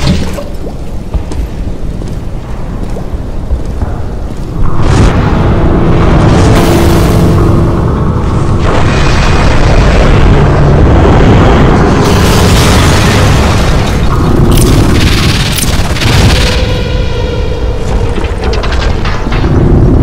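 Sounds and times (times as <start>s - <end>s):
rumble of explosions: 0.0s - 20.0s
buzzing tone: 3.8s - 15.4s.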